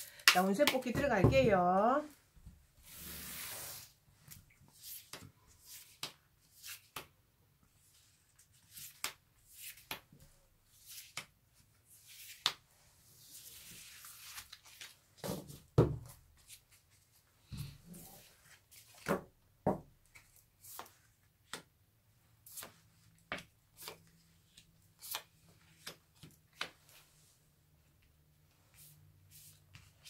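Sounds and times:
cards sliding on table: 2.8 - 3.9.

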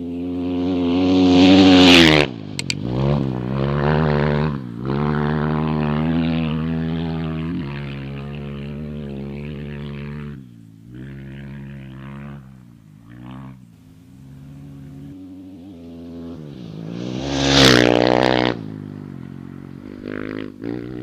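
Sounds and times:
race vehicle engine passing by: 0.0 - 21.0
sharp clicks: 2.6 - 2.8.

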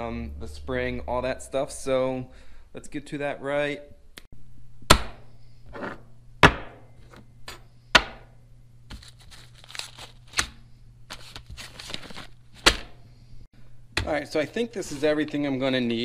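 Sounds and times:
steady low hum: 0.0 - 16.0
paper bags crinkling: 8.9 - 10.4, 11.1 - 12.6.

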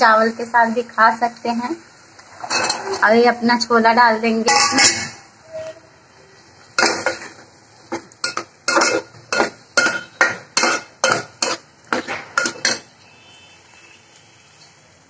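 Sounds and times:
spoon clinking against metal pot: 4.5 - 5.2, 8.2 - 12.9.

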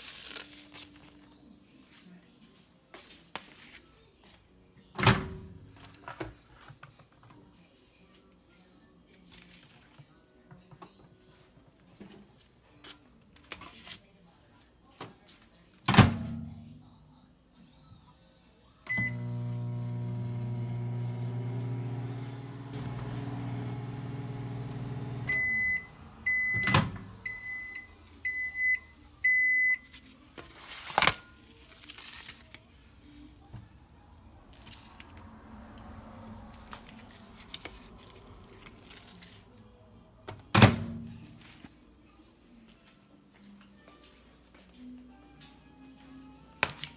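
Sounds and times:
microwave oven humming: 18.9 - 27.2
keypad beep: 25.3 - 29.8.

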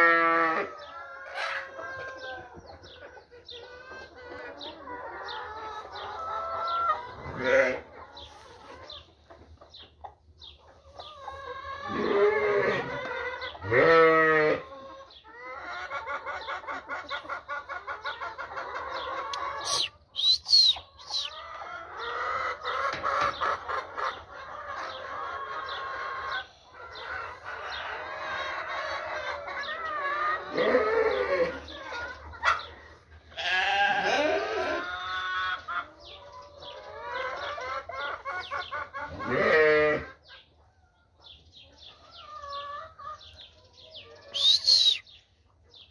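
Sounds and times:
chickens clucking and cackling: 0.0 - 45.9
loud drawn-out bird calls: 19.4 - 21.4, 44.2 - 45.2.

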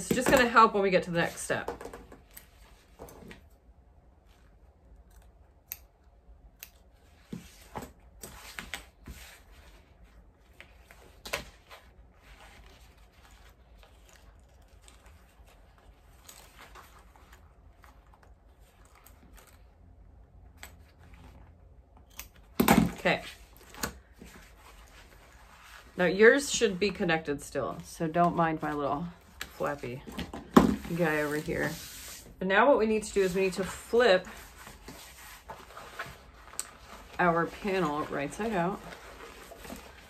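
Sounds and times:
fabric handling: 30.8 - 32.4, 33.1 - 40.0.

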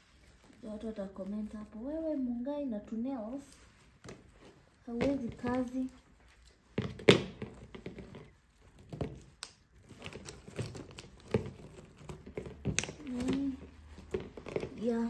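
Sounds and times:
plastic packaging crinkling and tearing: 8.4 - 13.6.

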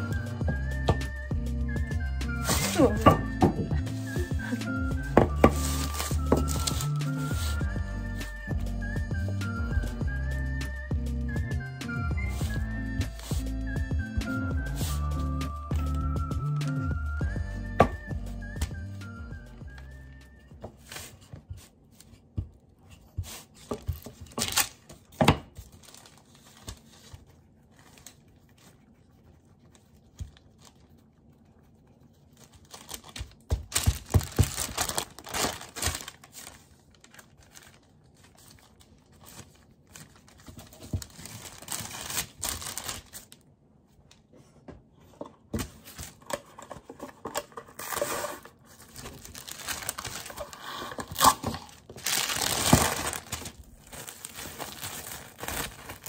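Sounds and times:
baking paper crinkling: 2.4 - 7.7, 23.2 - 43.4, 47.6 - 56.0.

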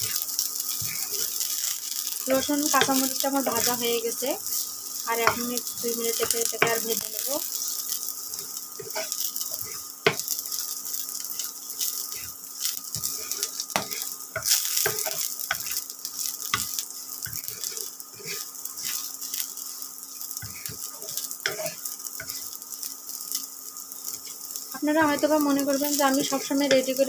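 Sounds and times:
wooden spatula scraping pan: 0.0 - 1.7, 8.4 - 10.6, 11.3 - 15.8, 16.5 - 19.8, 20.4 - 22.5
garlic sizzling in hot oil: 0.0 - 27.0.

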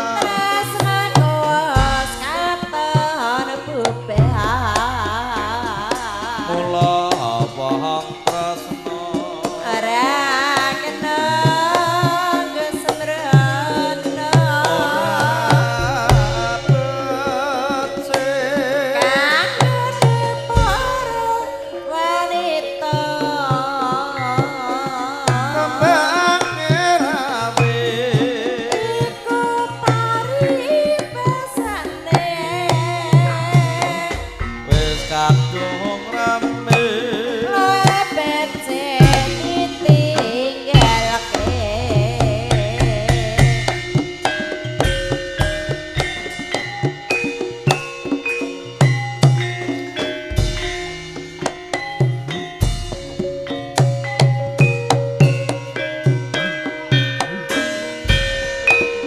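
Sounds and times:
woman singing with vibrato: 0.0 - 44.4
sustained gamelan tones: 8.8 - 59.0
low hand drum strokes: 13.2 - 21.4.

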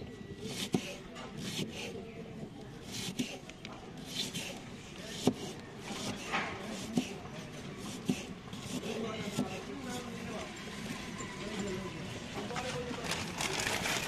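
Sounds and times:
knife cutting through onion: 0.4 - 2.0, 2.8 - 3.4, 4.0 - 10.0.

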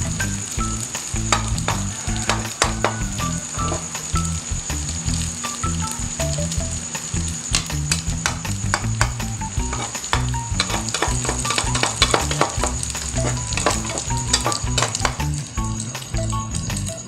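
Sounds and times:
patty sizzling in a frying pan: 0.0 - 17.0
spatula scraping and tapping pan: 1.2 - 4.2, 7.6 - 15.4.

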